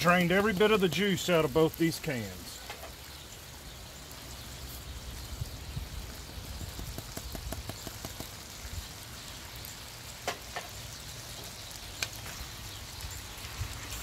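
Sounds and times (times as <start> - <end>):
food sizzling in a skillet: 0.0 - 14.0
small ticks and clicks: 6.5 - 14.0.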